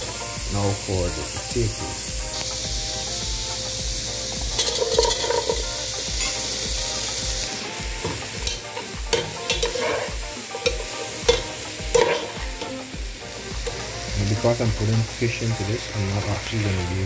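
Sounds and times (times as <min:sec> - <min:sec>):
leeks sizzling in oil: 0:00.0 - 0:17.0
vegetables tumbling into pot: 0:04.6 - 0:05.7
metal spoon scraping pot: 0:04.6 - 0:06.3, 0:09.2 - 0:10.1, 0:10.7 - 0:12.4.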